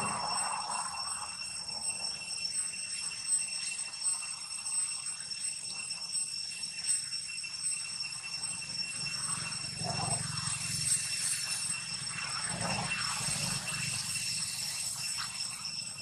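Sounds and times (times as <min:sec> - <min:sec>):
high-pitched insect drone: 0:00.0 - 0:16.0.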